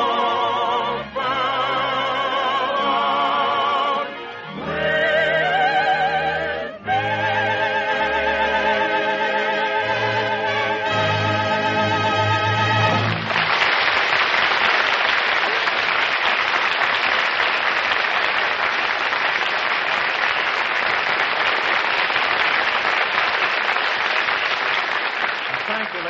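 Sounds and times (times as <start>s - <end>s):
audience applauding: 12.7s - 26.0s.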